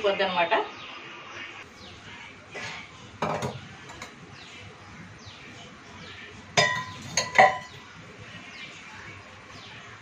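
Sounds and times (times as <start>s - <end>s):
metal kitchenware clinking: 2.5s - 4.2s, 6.5s - 7.8s.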